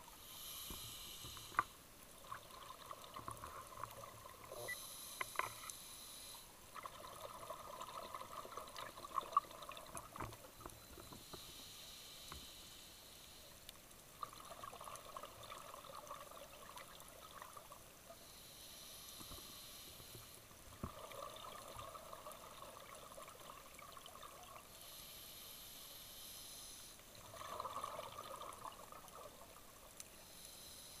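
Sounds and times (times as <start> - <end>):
regulator hissing inhale: 0.1 - 1.8, 4.7 - 6.6, 11.0 - 13.6, 18.2 - 20.4, 24.7 - 27.1, 30.1 - 31.0.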